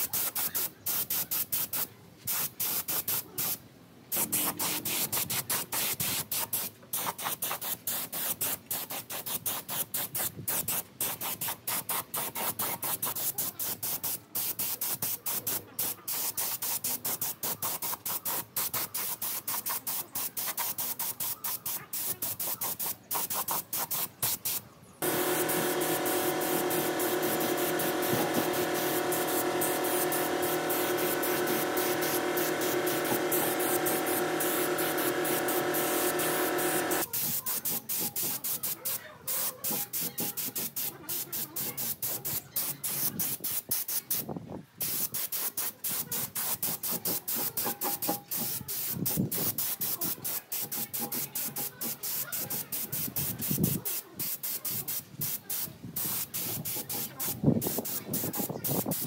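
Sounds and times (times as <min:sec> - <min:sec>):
hissing spray bursts: 0:00.0 - 0:59.0
mechanical hum with clear tone: 0:04.2 - 0:05.2, 0:24.9 - 0:37.1.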